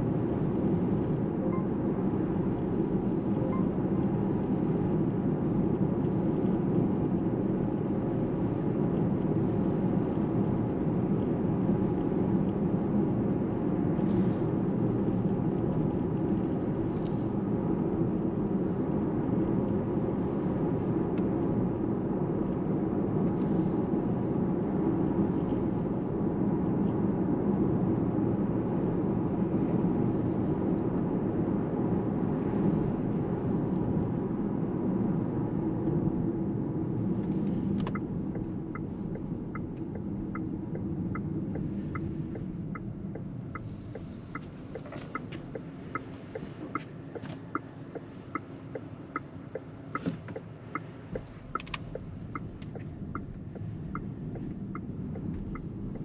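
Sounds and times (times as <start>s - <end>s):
road and tyre rumble: 0.0s - 56.0s
regular ticking: 37.9s - 56.0s.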